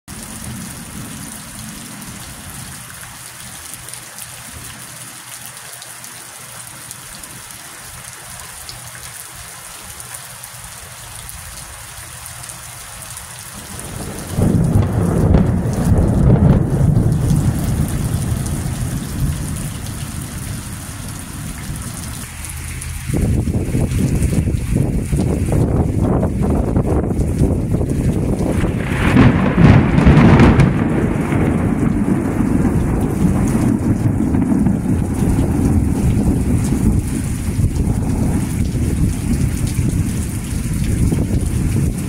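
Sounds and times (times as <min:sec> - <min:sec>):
steady rain: 0:00.1 - 0:42.0
thunder clap rumbling: 0:13.6 - 0:42.0.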